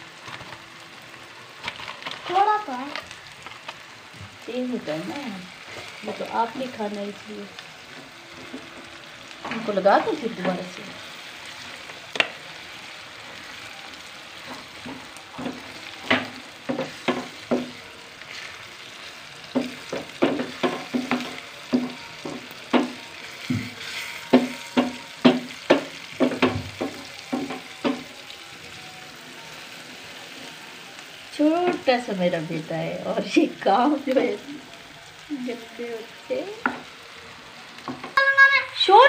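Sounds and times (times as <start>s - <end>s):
vegetables sizzling in a frying pan: 0.0s - 39.0s
wooden spatula scraping a pan: 5.6s - 6.3s, 14.3s - 28.0s.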